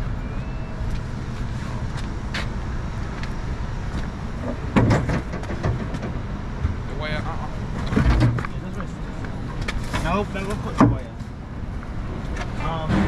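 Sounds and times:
traffic rumble: 0:00.0 - 0:13.0
wind: 0:00.0 - 0:13.0
short knocks and clatters: 0:04.5 - 0:06.8.

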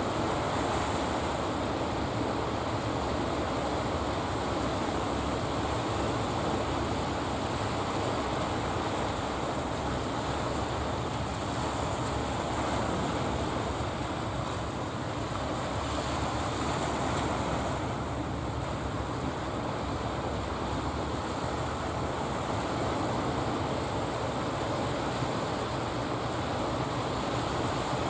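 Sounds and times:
sea surf breaking: 0:00.0 - 0:28.0.

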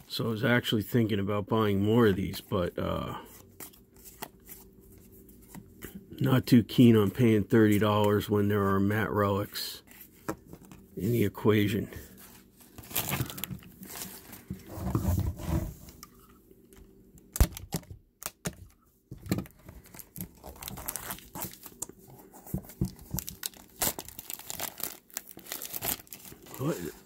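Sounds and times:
plastic shrink wrap crinkling: 0:12.5 - 0:14.4, 0:19.4 - 0:22.0, 0:22.7 - 0:26.8.

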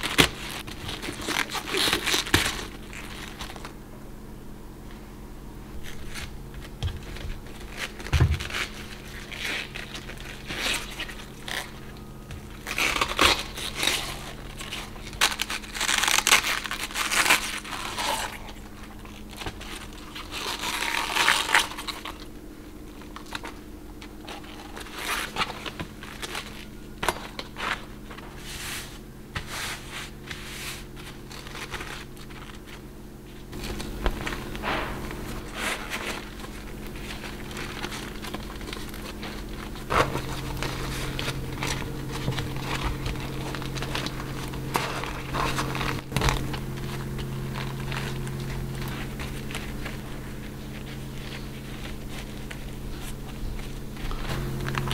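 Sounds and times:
cabbage leaves snapping: 0:00.0 - 0:03.7, 0:05.8 - 0:22.3
wax wrap crinkling: 0:00.0 - 0:03.8, 0:04.9 - 0:54.9
steady low hum: 0:00.0 - 0:54.9.

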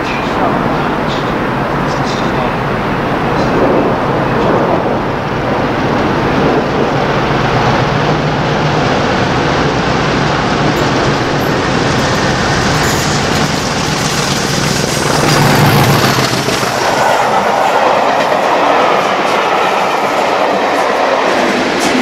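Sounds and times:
diesel locomotive engine running: 0:00.1 - 0:22.0
wheels clicking over rail joints: 0:10.7 - 0:18.6.

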